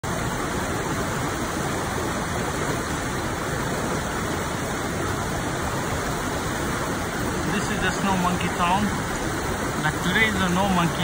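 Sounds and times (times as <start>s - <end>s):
river rushing over rapids: 0.0s - 11.0s
water spilling over weir: 0.0s - 11.0s.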